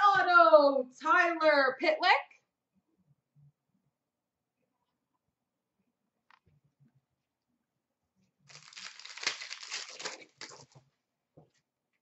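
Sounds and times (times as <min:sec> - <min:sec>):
foil wrapper crinkling: 0:08.5 - 0:10.8.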